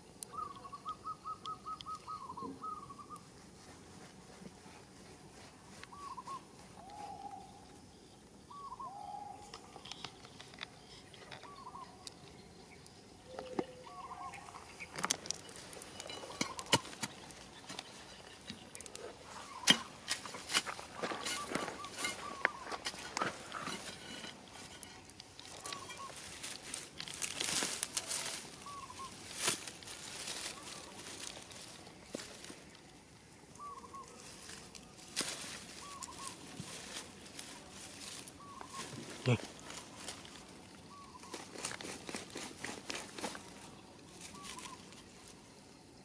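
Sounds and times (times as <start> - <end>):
bird calling: 0.2 - 3.3, 5.7 - 32.7, 33.4 - 45.3
pebbles clicking: 14.6 - 28.4
stick scraping stony soil: 14.6 - 32.8, 41.2 - 45.0.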